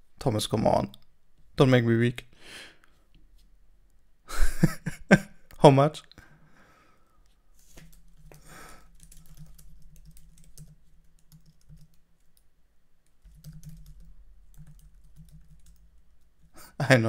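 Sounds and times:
typing on a keyboard: 0:07.8 - 0:12.5, 0:13.2 - 0:16.0.

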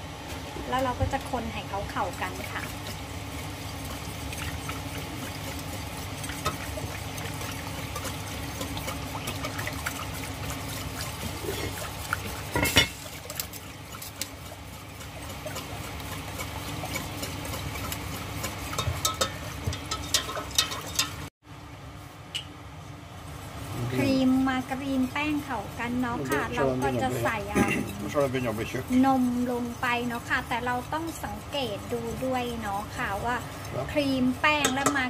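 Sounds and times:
sauce stirring wet swishing: 0:01.2 - 0:21.3, 0:23.3 - 0:35.0
utensil knocking against pan: 0:18.7 - 0:21.2, 0:34.6 - 0:35.0.

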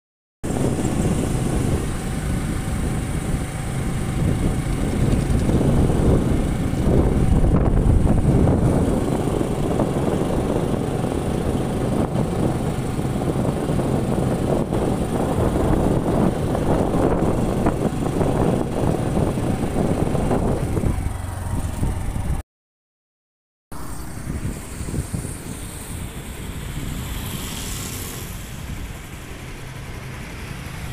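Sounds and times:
motorcycle engine: 0:00.4 - 0:22.4
wind rushing over microphone: 0:00.4 - 0:22.4, 0:23.7 - 0:30.9.

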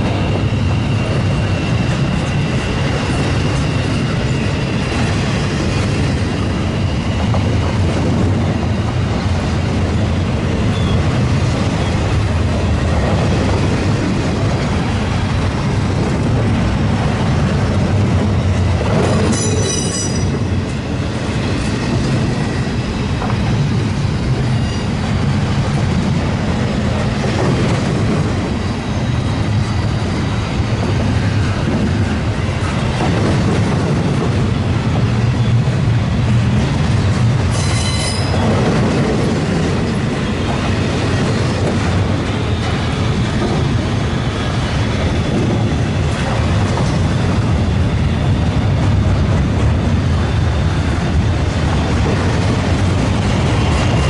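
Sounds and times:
rail clacks: 0:00.0 - 0:54.0
train wheels rumbling on rail: 0:00.0 - 0:54.0
high wheel squeal: 0:19.3 - 0:20.4, 0:37.5 - 0:38.5.

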